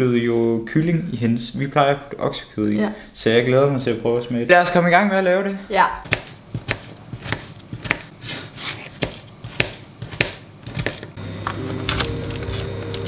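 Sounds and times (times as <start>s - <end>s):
knife chopping on plastic board: 6.0s - 11.1s
background music with held notes: 11.4s - 13.0s.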